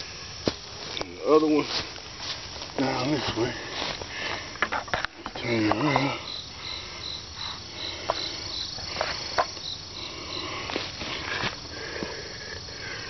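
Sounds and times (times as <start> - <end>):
clicks and rustles in grass: 0.0 - 6.1, 10.6 - 11.7
insect chirping: 0.0 - 13.0.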